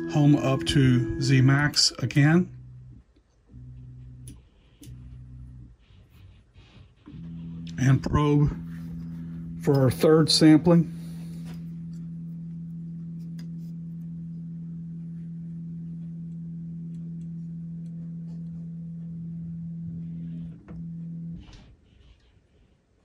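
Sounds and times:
stepper motors humming: 7.1s - 21.5s.

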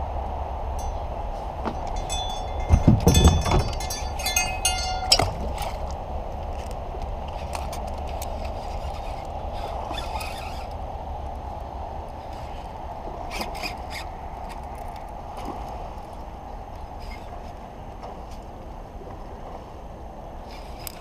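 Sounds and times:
sharp clicks and rattles: 1.8s - 5.9s
loud knocks: 2.6s - 3.9s.

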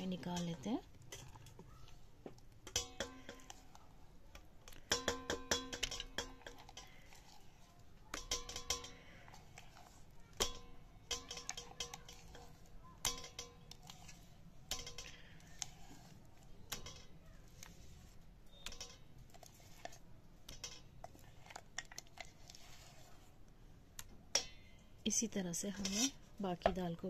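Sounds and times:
spatula scraping metal jar: 0.0s - 1.6s, 4.7s - 23.3s, 25.5s - 26.2s.

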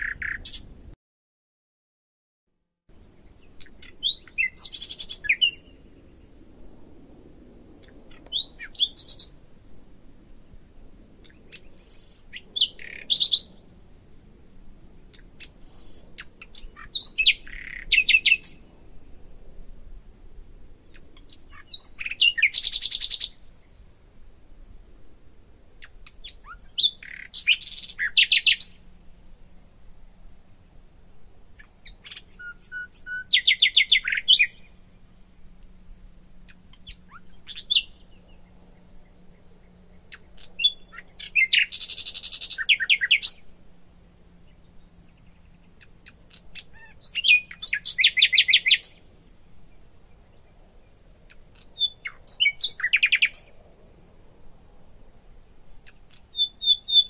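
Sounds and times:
songbird chirping and trilling: 0.0s - 0.8s, 2.9s - 6.3s, 7.8s - 9.4s, 10.6s - 13.7s, 15.1s - 19.2s, 20.9s - 23.9s, 25.4s - 28.9s, 31.0s - 35.6s, 36.4s - 43.6s, 44.3s - 53.6s, 55.8s - 57.0s.

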